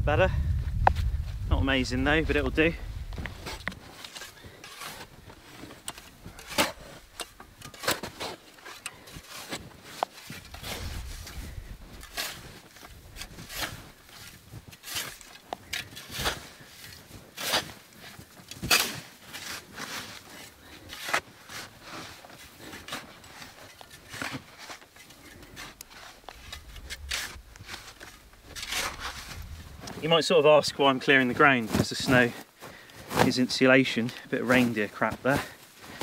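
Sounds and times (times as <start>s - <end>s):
shovel scraping wet snow: 3.4s - 11.4s, 12.0s - 30.2s.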